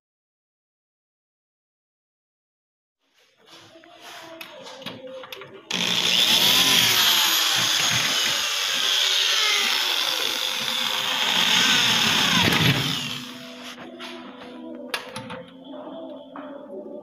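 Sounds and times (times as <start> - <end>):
electric drill drilling: 5.7 - 13.6.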